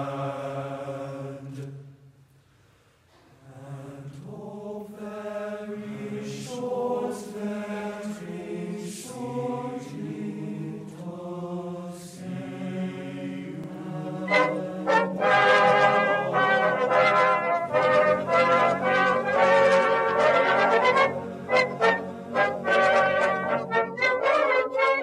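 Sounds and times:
choir singing held notes: 3.5s - 25.0s
brass: 14.0s - 25.0s.

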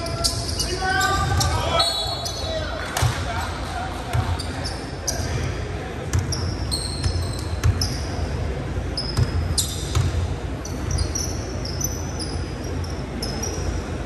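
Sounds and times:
sneakers squeaking on hardwood: 6.1s - 8.2s, 9.0s - 13.8s
basketball bouncing: 9.1s - 10.2s.

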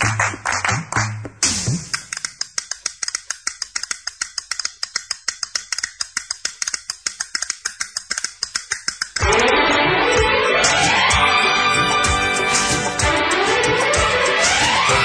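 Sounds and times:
fast percussive clicks: 0.0s - 9.3s.

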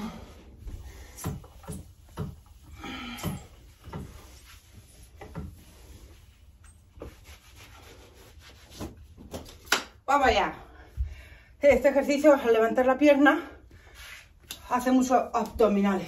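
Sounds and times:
towel rubbing metal pole: 0.0s - 9.2s.

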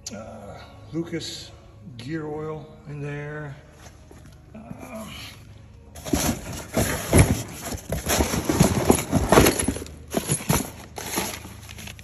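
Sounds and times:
cardboard scraping and rustling: 6.0s - 12.0s.

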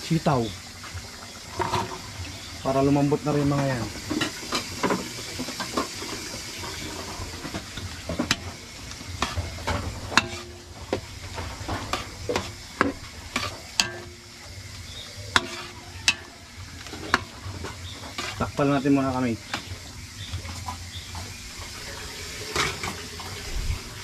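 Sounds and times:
sauce sizzling: 0.0s - 24.0s
metal ladle scraping a wok: 1.4s - 2.6s, 4.0s - 20.8s, 21.8s - 23.2s.

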